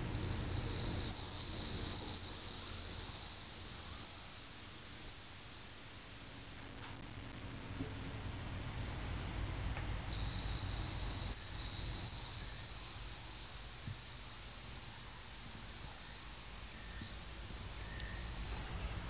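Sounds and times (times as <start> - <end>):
cricket ringing trill: 0.0 - 6.6, 10.1 - 18.7.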